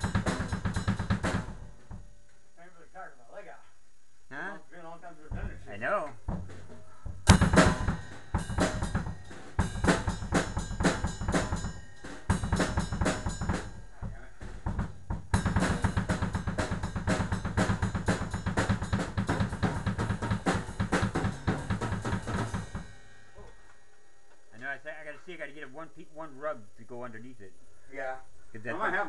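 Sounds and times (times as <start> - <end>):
fast drum kit beat: 0.0 - 2.1, 5.2 - 23.5.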